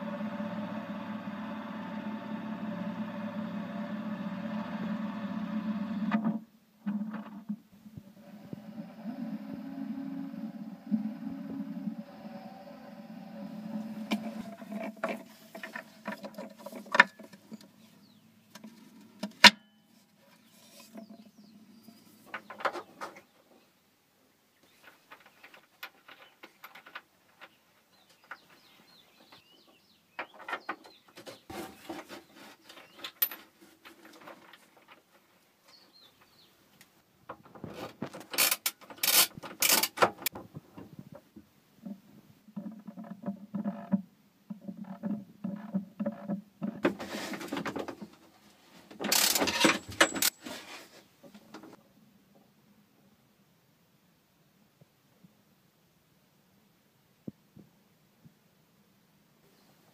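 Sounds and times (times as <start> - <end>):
low hum: 0.0 - 6.4, 7.9 - 15.0
handling clicks and rustles: 14.1 - 19.6, 44.6 - 51.8.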